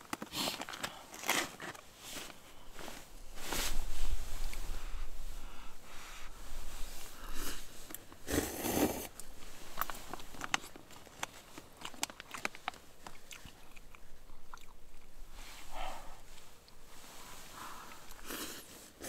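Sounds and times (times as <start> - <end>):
person slurping noodles: 7.4 - 9.1, 18.0 - 19.0
chewing and mouth smacks: 11.6 - 15.1.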